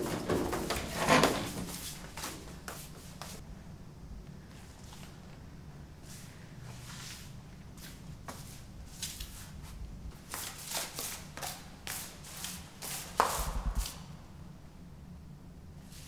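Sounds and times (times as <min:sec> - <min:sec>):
footsteps on hard floor: 0:00.0 - 0:03.4.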